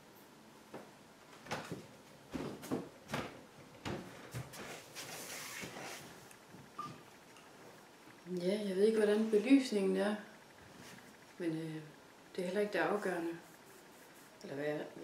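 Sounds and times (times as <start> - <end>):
footsteps across a room: 0.7 - 7.8.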